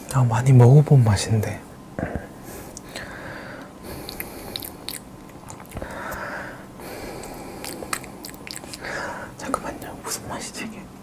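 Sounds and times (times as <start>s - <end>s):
breath: 2.0s - 4.7s, 5.8s - 8.0s, 8.8s - 9.4s
lip smacks: 3.9s - 6.2s, 7.2s - 8.9s
tongue clicks: 4.0s - 5.8s, 7.2s - 8.8s.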